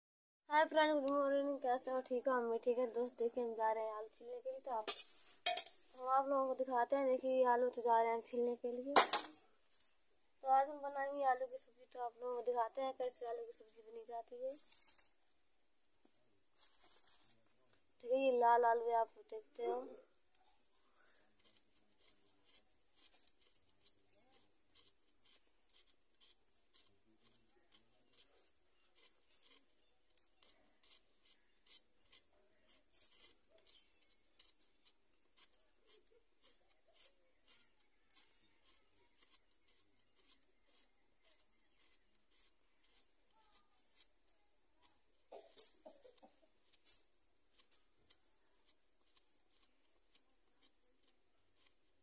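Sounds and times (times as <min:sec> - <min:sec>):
blade scraping potato skin: 0:20.5 - 0:44.2, 0:45.5 - 0:51.9.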